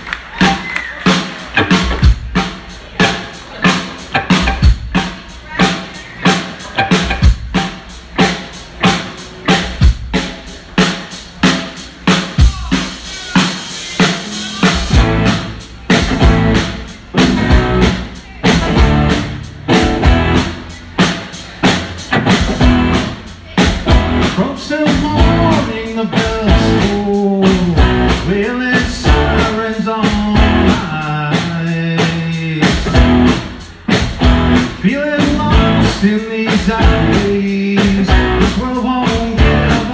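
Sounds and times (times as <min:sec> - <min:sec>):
live rock band playing: 0:00.0 - 0:39.9
man singing: 0:23.6 - 0:33.1, 0:34.6 - 0:39.9.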